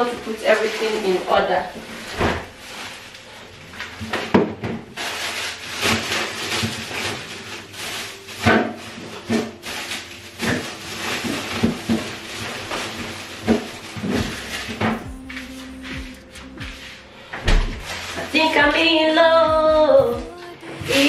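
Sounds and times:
plastic bag rustling: 0:00.0 - 0:21.0.

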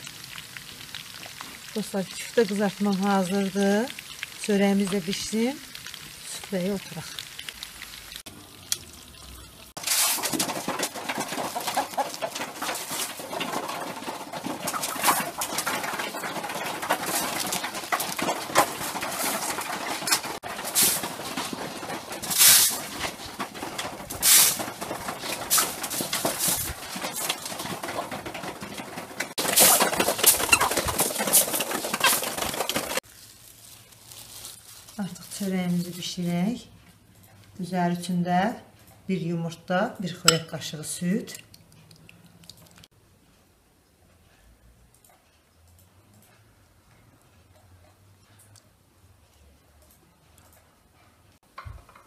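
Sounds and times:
sharp rustles: 0:09.8 - 0:36.0
chickens clucking: 0:10.4 - 0:20.4, 0:27.0 - 0:33.0.

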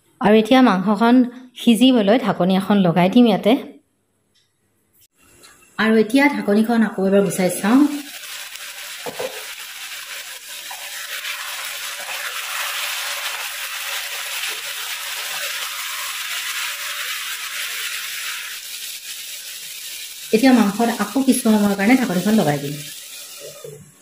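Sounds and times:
chicken sizzling in a pan: 0:05.2 - 0:24.0.

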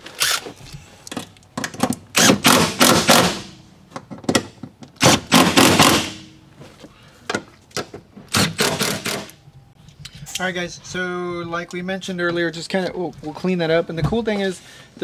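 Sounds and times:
impact driver hammering bolts: 0:01.2 - 0:03.6, 0:04.2 - 0:06.4, 0:08.3 - 0:09.4.

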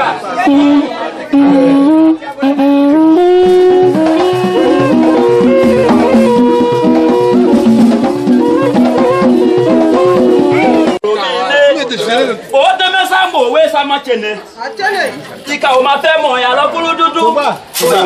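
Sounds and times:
horn-like melody: 0:00.4 - 0:11.0
drums and percussion: 0:00.4 - 0:11.1.

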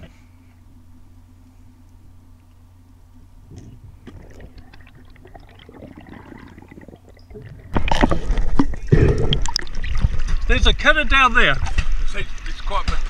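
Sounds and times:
water sloshing and gurgling: 0:03.5 - 0:13.0.

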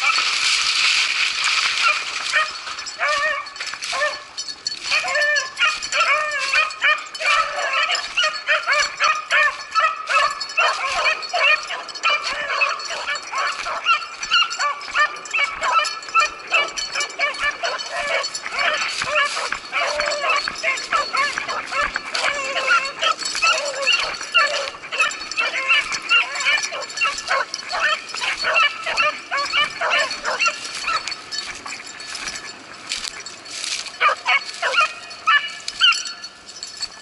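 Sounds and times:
dogs baying and yelping: 0:00.0 - 0:00.4, 0:01.6 - 0:37.0.

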